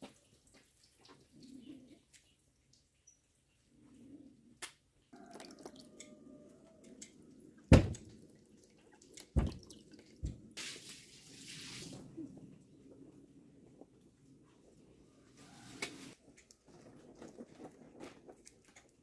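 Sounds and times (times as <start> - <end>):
water splashing into plastic basin: 7.8 - 11.9.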